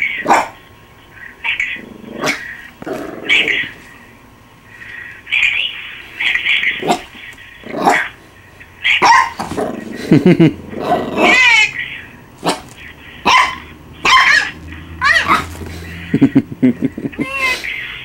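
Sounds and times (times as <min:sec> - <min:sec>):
puppy barking and yipping: 0:00.2 - 0:00.6, 0:07.8 - 0:08.2, 0:08.9 - 0:09.6, 0:11.2 - 0:11.8, 0:12.4 - 0:16.1
puppy growling: 0:01.6 - 0:04.0, 0:06.6 - 0:08.2, 0:09.3 - 0:17.2
puppy whining yelp: 0:11.2 - 0:11.7, 0:13.3 - 0:15.7.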